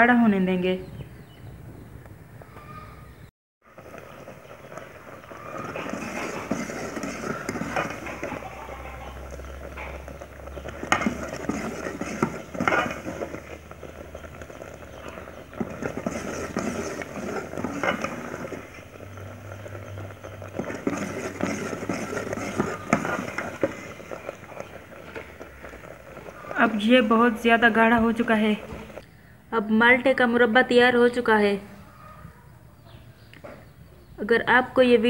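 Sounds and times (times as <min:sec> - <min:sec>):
metal ladle scraping a pot: 0:03.8 - 0:29.0.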